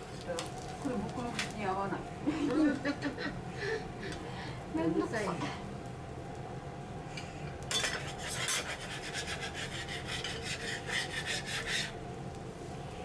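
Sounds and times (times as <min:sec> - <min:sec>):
steady low hum: 0:00.0 - 0:13.0
metal spatulas scraping griddle: 0:07.7 - 0:12.0.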